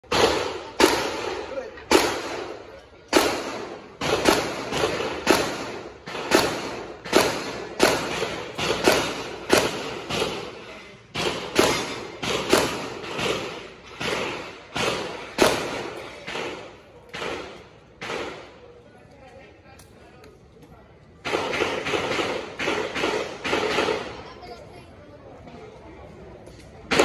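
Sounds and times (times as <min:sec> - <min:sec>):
gunshots with echo: 0:00.0 - 0:18.6, 0:21.2 - 0:24.2.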